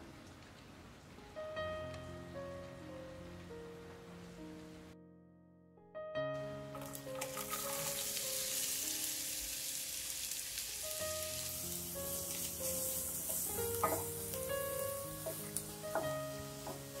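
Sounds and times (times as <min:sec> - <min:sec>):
soft background music: 0:00.0 - 0:17.0
onion sizzling in oil: 0:06.7 - 0:17.0.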